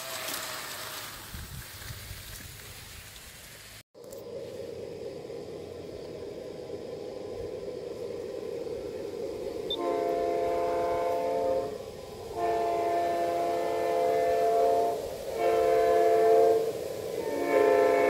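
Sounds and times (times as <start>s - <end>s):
model locomotive engine sound: 4.0s - 18.0s
multi-note train horn blasts: 9.7s - 18.0s.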